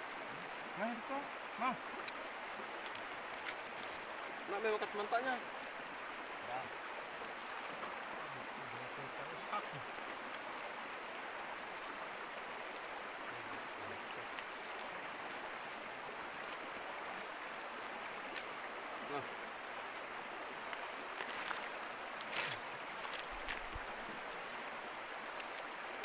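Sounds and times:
flowing stream: 0.0s - 26.0s
night insects droning: 0.0s - 26.0s.

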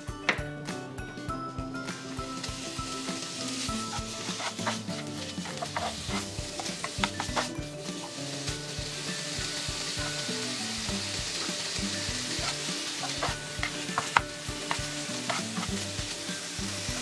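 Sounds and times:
food sizzling in a frying pan: 1.7s - 17.0s
spatula stirring and scraping: 2.8s - 8.5s, 11.2s - 16.2s.

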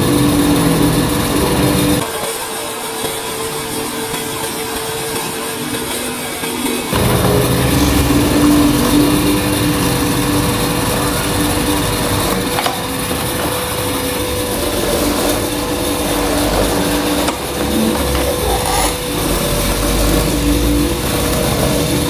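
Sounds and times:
mortising machine motor hum: 6.9s - 22.0s.

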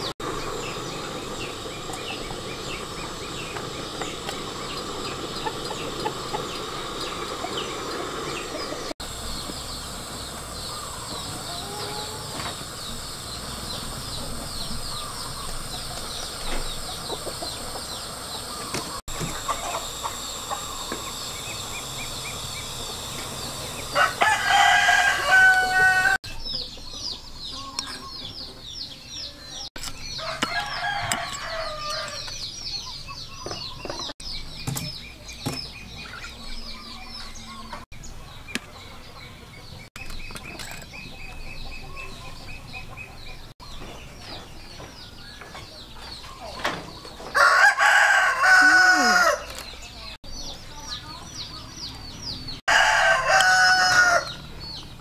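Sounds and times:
roosters crowing: 0.0s - 26.2s, 30.0s - 32.4s, 46.9s - 49.8s, 52.6s - 54.8s
fast high chirping: 0.0s - 26.4s.

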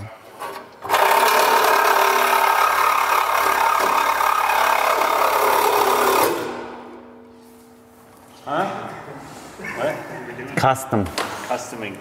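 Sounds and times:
reciprocating saw cutting metal: 0.8s - 6.8s.

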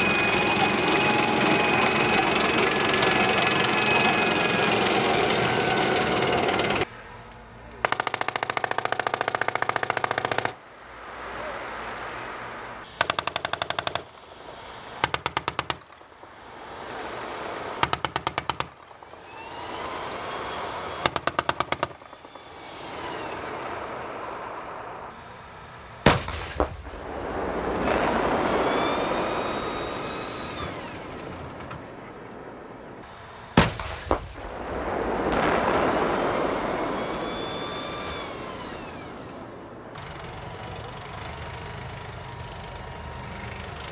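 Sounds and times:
machine-gun fire bursts: 7.8s - 10.6s, 13.0s - 14.1s
heavy cannon shots: 26.0s - 29.4s, 33.5s - 37.2s.

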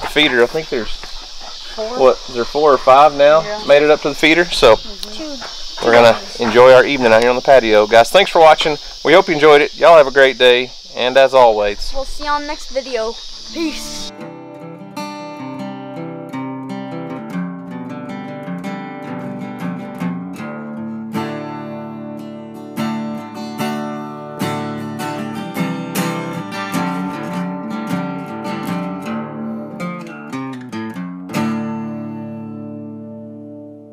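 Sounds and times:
acoustic guitar picking and strumming: 0.0s - 8.6s, 12.0s - 33.9s.

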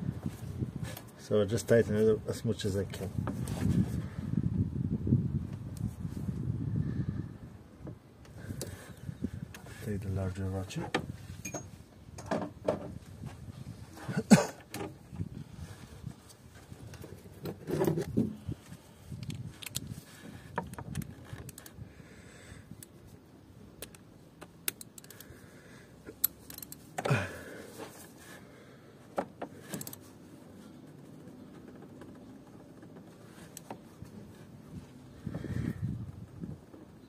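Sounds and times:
ratchet clicking: 26.1s - 26.8s.

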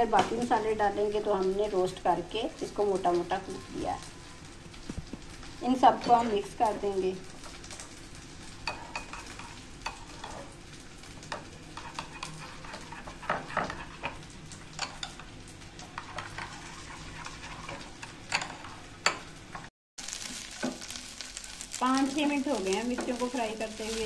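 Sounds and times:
frying sizzle: 0.0s - 24.0s
spoon scraping a bowl: 11.7s - 14.2s, 16.0s - 19.2s.

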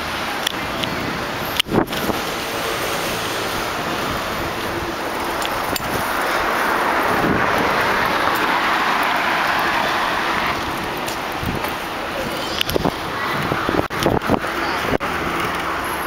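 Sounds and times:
street traffic: 0.0s - 16.0s
wind rushing over microphone: 0.0s - 16.0s
faint clicks: 12.5s - 12.9s.

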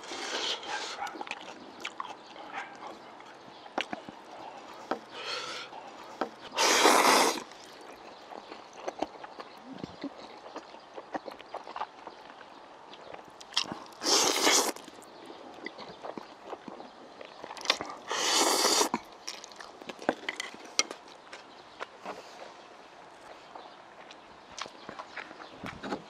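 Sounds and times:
chewing and mouth clicks: 0.0s - 21.9s, 24.0s - 26.0s
man slurping noodles: 6.5s - 7.5s, 14.0s - 14.8s, 18.1s - 19.0s.

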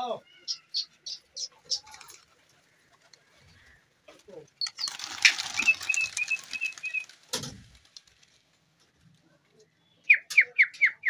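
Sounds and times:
pigeon wingbeats and claps: 4.6s - 8.3s.

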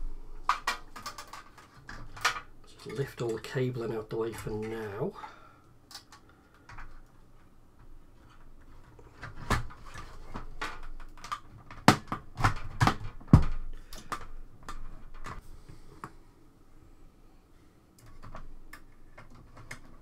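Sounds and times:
plastic casing clicks and knocks: 9.2s - 15.4s.

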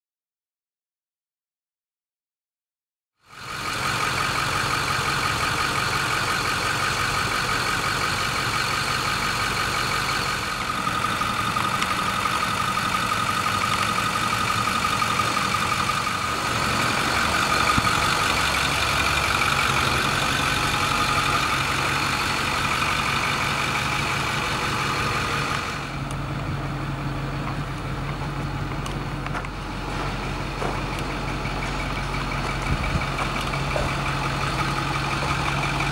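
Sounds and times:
truck engine idling: 3.2s - 35.9s.

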